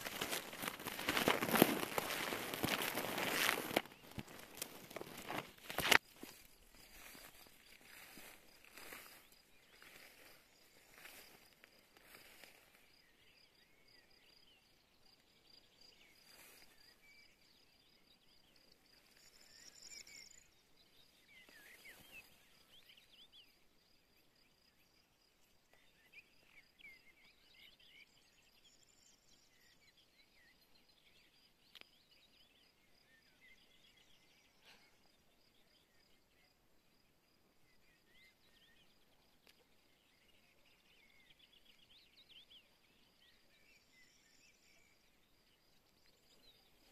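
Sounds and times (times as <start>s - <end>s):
soft handling rustles: 0.0s - 10.3s
bird chirps: 0.0s - 25.1s.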